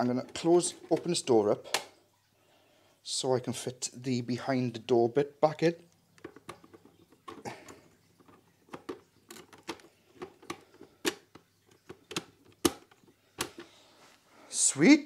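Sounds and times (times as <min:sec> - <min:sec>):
plastic panels clicking: 0:00.2 - 0:02.0, 0:06.1 - 0:13.8
plastic panels knocking: 0:06.2 - 0:13.8.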